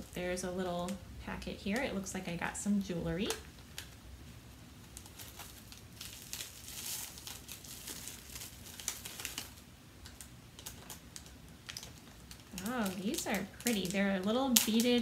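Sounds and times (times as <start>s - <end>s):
plastic bag crinkling: 4.6s - 15.0s.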